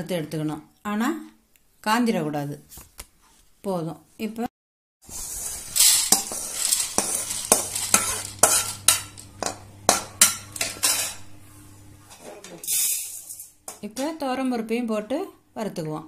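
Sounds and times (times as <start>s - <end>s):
metal skimmer scraping a pan: 5.1s - 11.3s
lentils rattling onto a plate: 5.4s - 9.3s
low steady hum: 6.2s - 16.0s.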